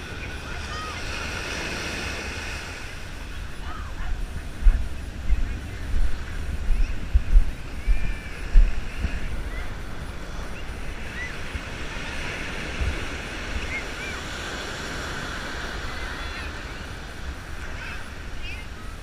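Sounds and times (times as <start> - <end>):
ocean surf washing onto beach: 0.0 - 19.0
wind buffeting microphone: 0.0 - 19.0.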